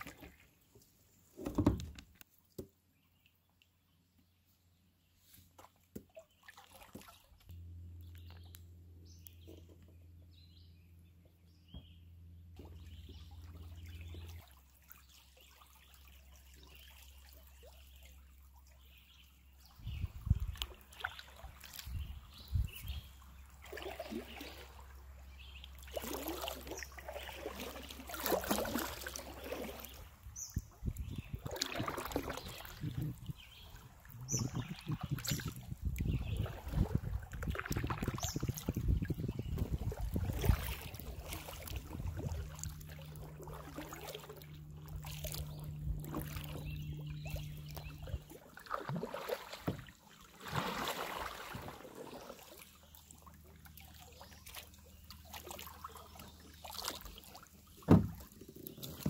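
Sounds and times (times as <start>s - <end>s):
paddle splashing in water: 0.0s - 1.9s, 5.2s - 7.5s, 19.9s - 59.0s
water dripping and trickling: 30.9s - 49.9s
steady low hum: 38.7s - 49.2s.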